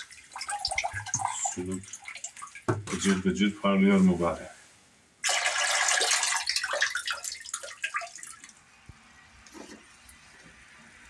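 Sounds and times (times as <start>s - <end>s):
water dripping: 0.0s - 3.1s, 5.2s - 10.2s
water splashing in a colander: 0.0s - 3.2s, 5.2s - 8.8s.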